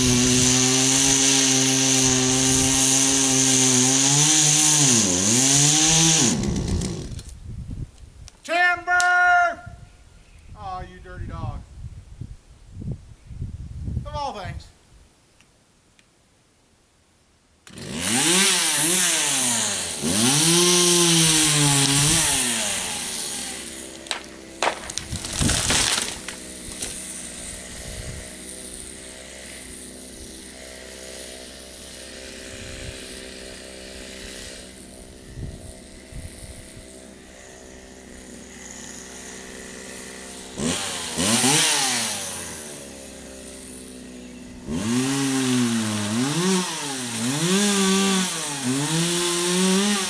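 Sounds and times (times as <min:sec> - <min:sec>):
chainsaw cutting and idling: 0:00.0 - 0:07.4, 0:17.6 - 0:50.0
tree crashing to the ground: 0:23.9 - 0:27.1.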